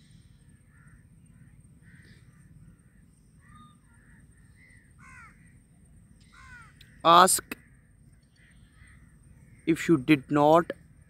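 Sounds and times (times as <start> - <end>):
crows cawing faintly: 0.0 - 11.0
low steady background hum: 0.0 - 11.0.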